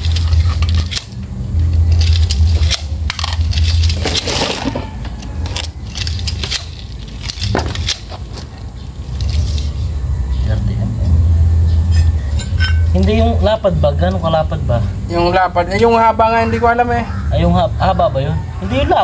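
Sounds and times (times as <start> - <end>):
metal and cable clinking: 0.0 - 9.9, 11.8 - 13.4
low hum: 0.0 - 19.0.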